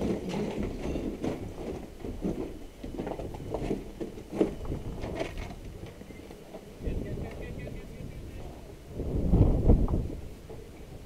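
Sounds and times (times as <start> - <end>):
people running over rubble and gravel: 0.0 - 5.8.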